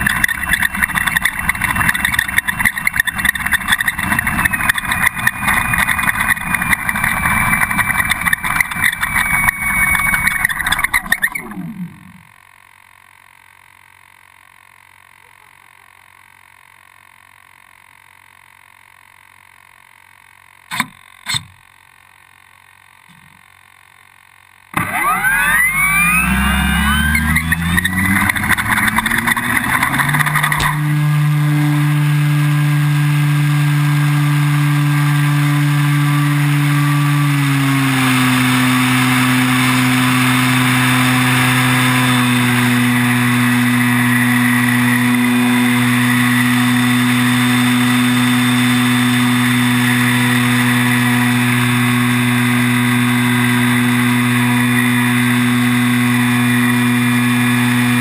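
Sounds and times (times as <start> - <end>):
wheels rattling over asphalt: 0.0 - 12.3, 27.0 - 31.1
electric motor and propeller drone: 0.0 - 12.9, 24.7 - 58.0.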